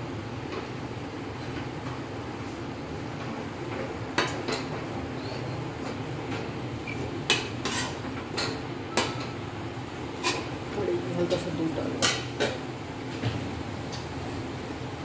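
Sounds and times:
metal spatula scraping pan: 7.6 - 8.0, 10.2 - 10.5.

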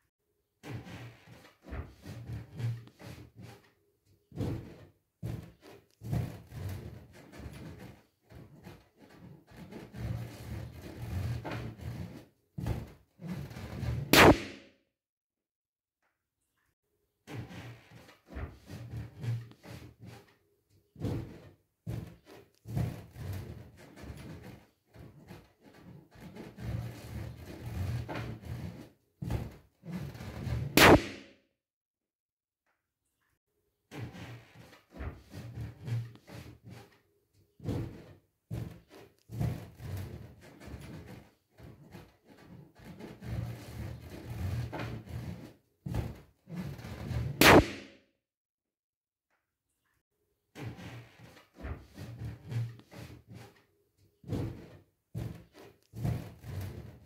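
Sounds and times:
balloon thumping and rubbing: 0.6 - 3.7, 4.3 - 14.8, 17.3 - 20.3, 20.9 - 31.4, 33.9 - 37.0, 37.6 - 48.0, 50.6 - 53.6, 54.2 - 57.0
balloon popping: 14.0 - 14.7, 30.7 - 31.4, 47.4 - 48.0.

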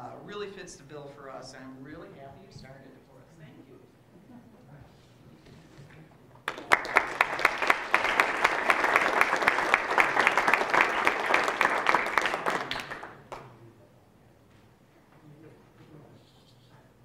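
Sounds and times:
audience applauding: 6.4 - 13.5.

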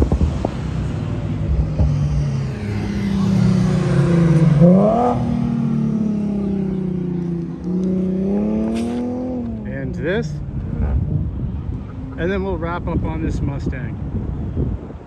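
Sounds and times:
car engine revving: 0.0 - 9.7.

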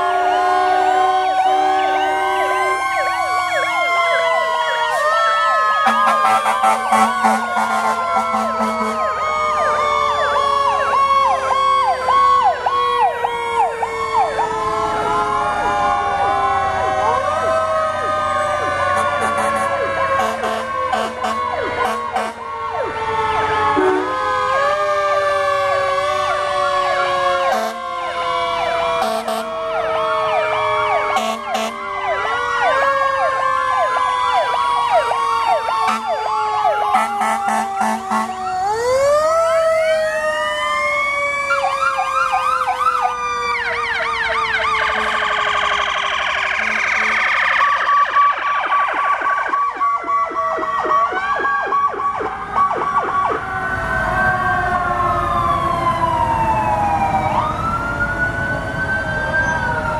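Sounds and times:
fire engine sirens wailing: 0.0 - 59.9
two-tone siren: 0.0 - 59.9
siren fast warbling yelps: 29.0 - 53.5.

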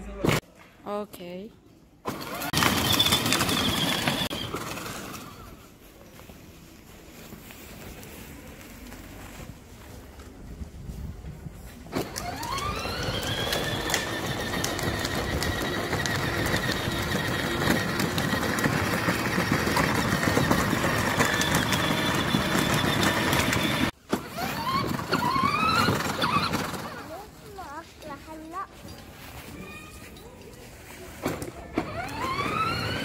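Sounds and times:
electric motor whining: 12.0 - 26.7.

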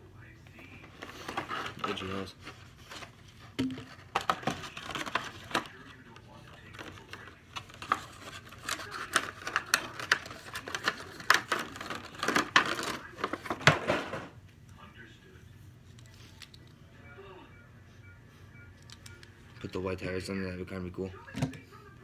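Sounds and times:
plastic packaging crackling: 6.7 - 13.6.

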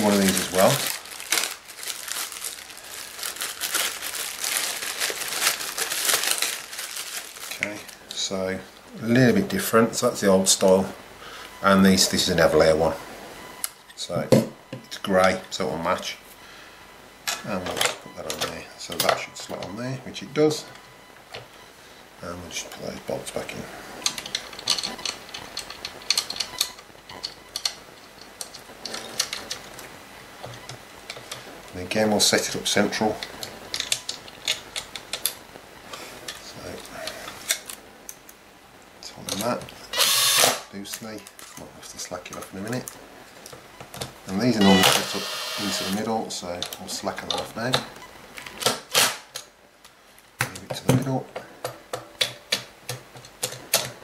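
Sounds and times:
plastic bag crinkling: 0.0 - 8.1.

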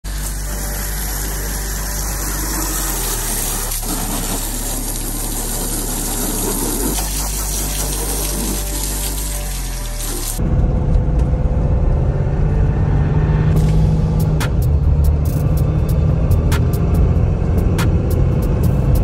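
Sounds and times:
pressure washer pump hum: 0.0 - 10.4
water jet spraying: 0.1 - 10.4.

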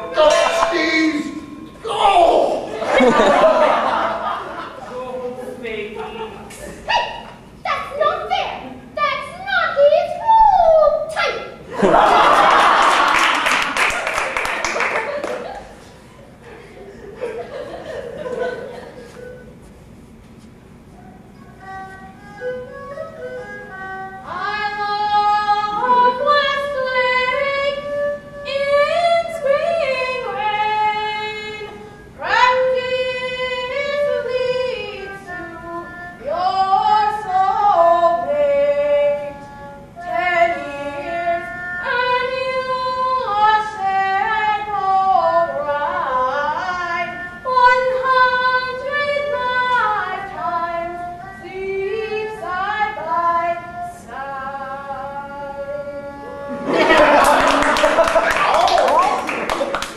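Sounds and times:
opera melody with sliding held notes: 18.2 - 58.2.

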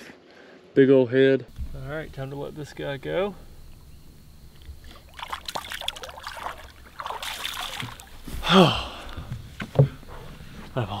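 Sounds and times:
water splashing beside a boat: 4.5 - 10.0.

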